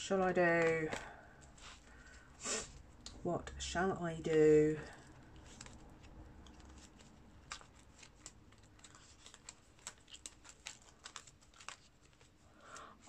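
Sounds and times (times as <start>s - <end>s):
plastic pockets crinkling: 4.2s - 13.0s.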